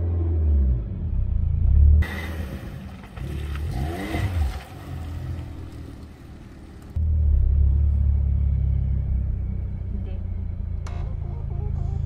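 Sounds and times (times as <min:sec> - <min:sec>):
car engine revving outside: 0:00.0 - 0:12.0
engine and road rumble inside cabin: 0:05.0 - 0:12.0.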